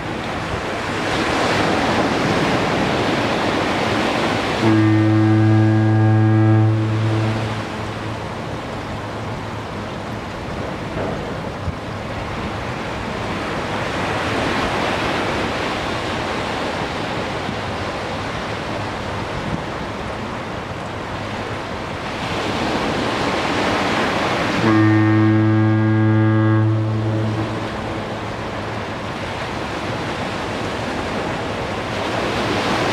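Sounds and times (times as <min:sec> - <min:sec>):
surf breaking on shore: 0:00.0 - 0:32.9
foghorn blast: 0:04.5 - 0:08.3, 0:24.5 - 0:28.8.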